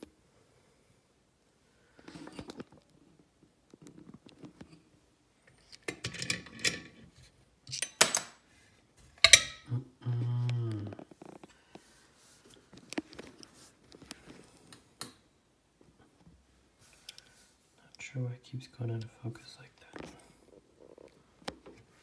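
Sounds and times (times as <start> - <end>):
metal lock clicks and clinks: 5.8 - 7.0, 7.7 - 8.4.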